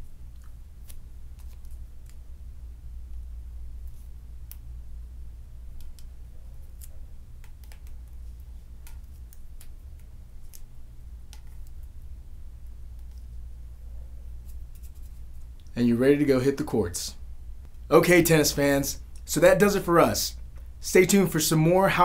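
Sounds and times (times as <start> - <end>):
steady low hum: 0.0 - 22.0
tape ticks and crinkles: 0.3 - 2.2.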